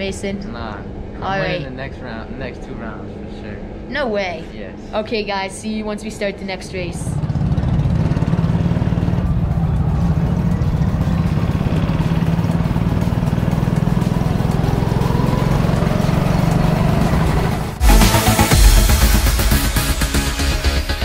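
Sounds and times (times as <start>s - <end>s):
go-kart engines running: 6.6s - 17.8s
kart engine whine: 6.8s - 18.6s.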